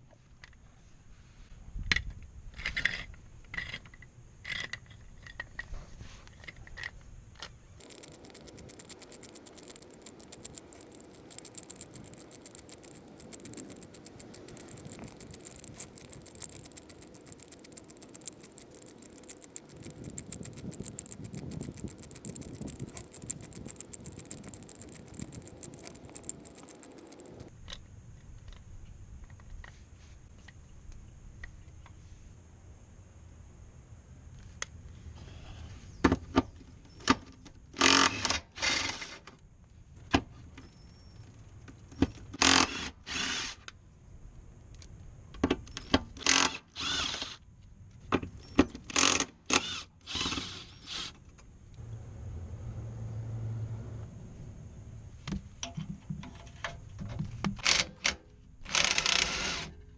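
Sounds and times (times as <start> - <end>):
hydraulic hiss with rapid ticking: 7.8 - 27.5, 46.2 - 47.4.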